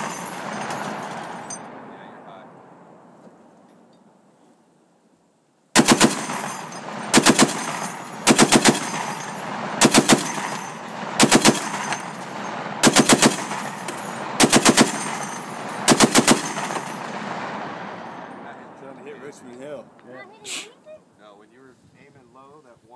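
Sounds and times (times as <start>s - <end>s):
heavy machine gun bursts: 5.8s - 18.4s
gunfire echo: 5.8s - 20.0s.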